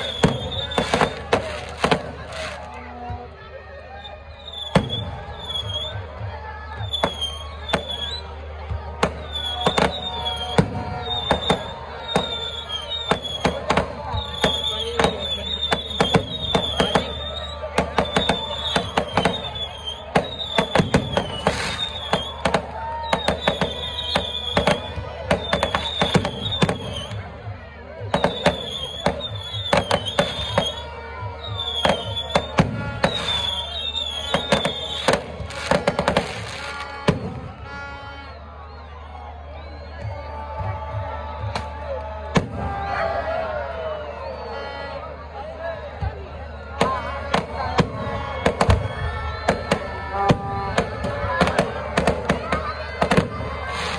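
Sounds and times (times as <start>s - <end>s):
fireworks bangs: 0.0s - 2.8s, 8.9s - 27.3s, 28.0s - 37.9s, 46.7s - 53.9s
music: 0.0s - 53.9s
high wavering whistle: 28.2s - 36.2s.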